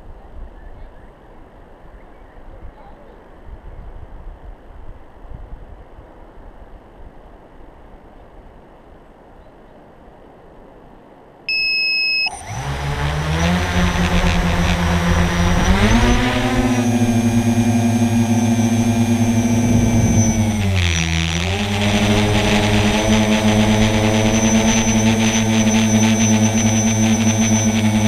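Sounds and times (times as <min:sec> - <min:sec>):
short electronic beep: 0:11.5 - 0:12.5
drone motors whirring: 0:11.5 - 0:28.0.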